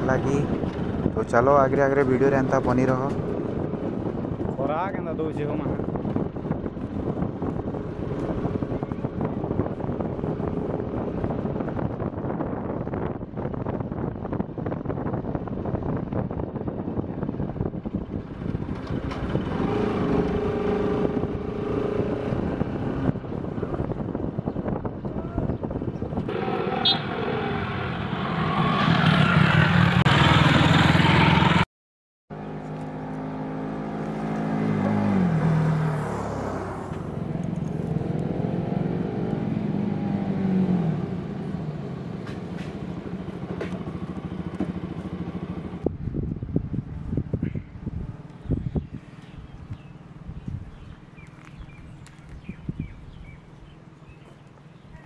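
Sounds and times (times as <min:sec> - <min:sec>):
wind on microphone: 0:00.0 - 0:27.3, 0:45.4 - 0:55.0
motorcycle engine revving: 0:17.7 - 0:24.3, 0:26.2 - 0:31.6.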